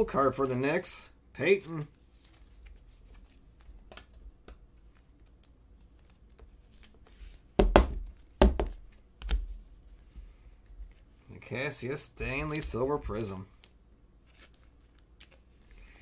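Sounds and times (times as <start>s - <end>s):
card thumping on tabletop: 7.6s - 9.4s
plastic sleeve rustling: 12.2s - 16.0s.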